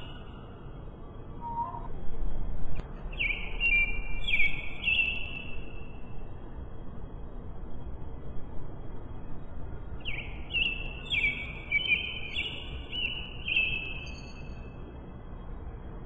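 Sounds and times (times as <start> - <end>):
steady low background noise: 0.0 - 16.0
birds chirping: 1.3 - 1.9.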